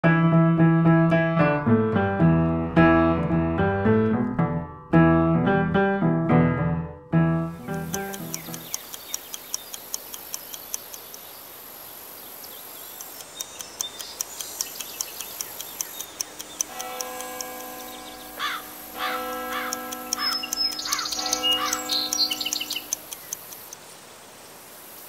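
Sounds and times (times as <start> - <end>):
bird chirps: 7.5 - 11.5, 12.3 - 23.6
clock ticking: 7.7 - 11.0, 13.2 - 23.6.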